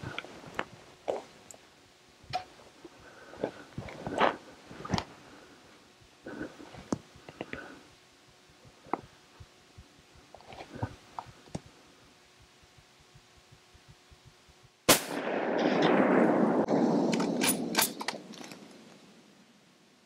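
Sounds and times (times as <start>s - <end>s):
rifle shot: 14.9s - 18.3s.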